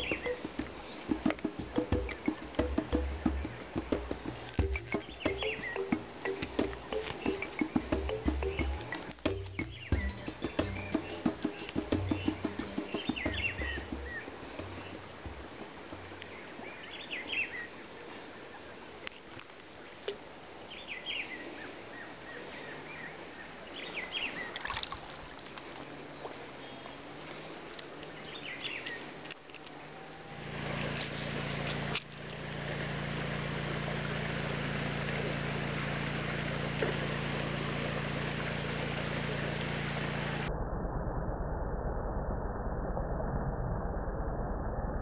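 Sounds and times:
bird chirps: 0.0s - 15.4s, 16.0s - 17.8s
engine running: 0.0s - 17.6s, 30.4s - 40.5s.

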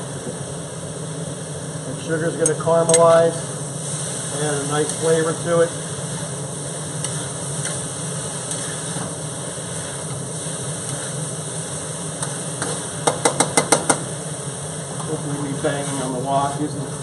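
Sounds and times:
gas flame drone: 0.0s - 17.0s
potatoes sizzling in a wok: 0.6s - 17.0s
tongs scraping wok: 7.0s - 7.8s, 8.4s - 9.1s.

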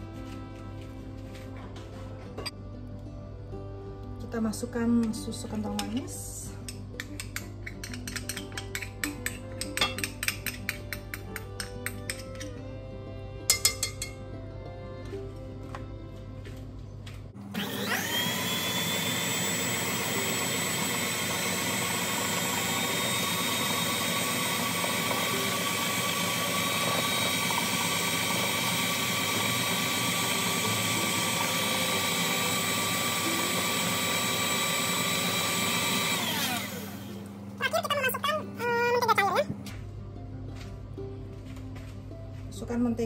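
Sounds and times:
stand mixer motor whining: 17.5s - 37.2s.

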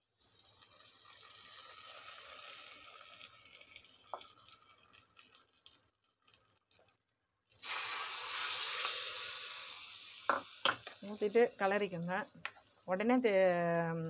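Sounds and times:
spices sizzling in oil: 0.0s - 6.9s, 7.5s - 14.0s
loud sizzling and splashing: 0.5s - 4.6s, 7.6s - 12.8s.

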